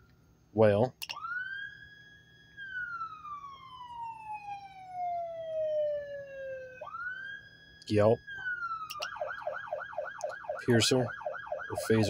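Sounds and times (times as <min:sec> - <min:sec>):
button click: 0:01.0 - 0:01.2
electronic siren wailing: 0:01.0 - 0:12.0.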